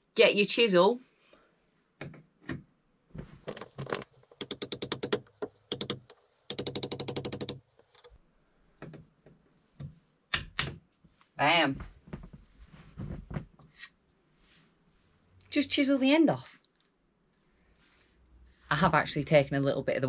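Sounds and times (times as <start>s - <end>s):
hammer tapping chisel: 4.3s - 8.1s.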